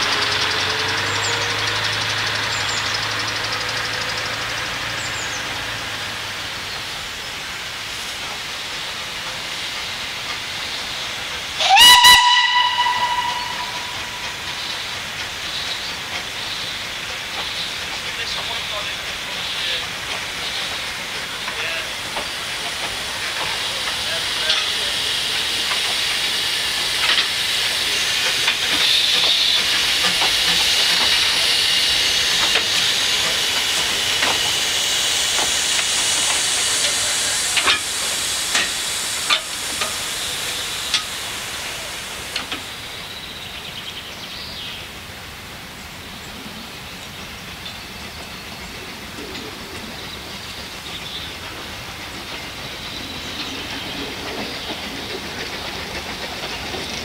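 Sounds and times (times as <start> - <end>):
steam hissing: 0.0 - 57.0
wheels clicking over rail joints: 12.9 - 44.8, 46.9 - 57.0.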